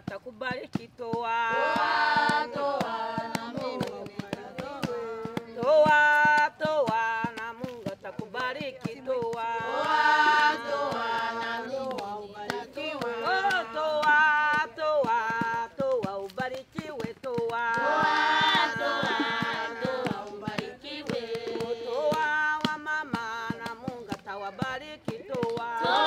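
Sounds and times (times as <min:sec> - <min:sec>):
sharp taps keeping a beat: 0:00.0 - 0:26.0
congregation singing a hymn: 0:01.3 - 0:06.0, 0:09.3 - 0:14.7, 0:17.6 - 0:23.4, 0:25.6 - 0:26.0.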